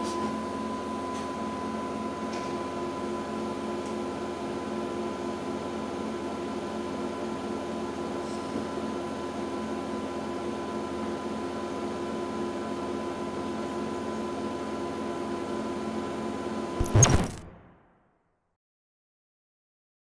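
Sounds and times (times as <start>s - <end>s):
mechanical hum with steady tones: 0.0s - 17.7s.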